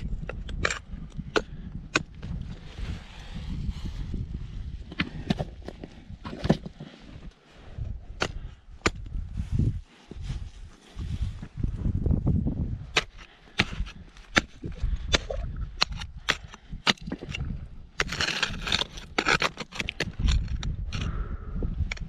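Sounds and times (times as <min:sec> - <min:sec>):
ice axe clicks on snow and rock: 0:13.0 - 0:22.0
ice axe scraping: 0:15.9 - 0:21.2.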